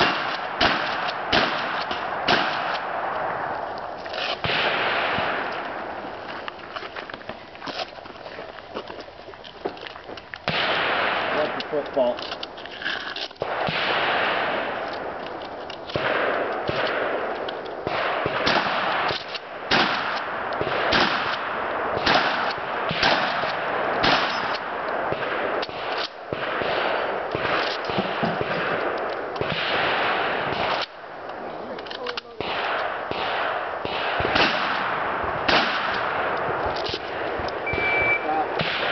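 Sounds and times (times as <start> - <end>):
gunshots with echo: 0.0 - 3.5, 4.4 - 6.1, 10.4 - 12.2, 13.4 - 15.2, 15.9 - 30.9, 32.2 - 38.9.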